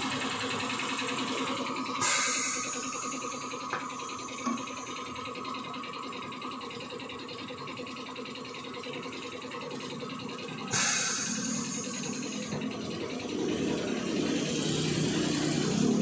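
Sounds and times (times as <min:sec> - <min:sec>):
low shop background noise: 0:00.0 - 0:16.0
sharp hiss of air: 0:02.0 - 0:03.3, 0:10.7 - 0:12.3.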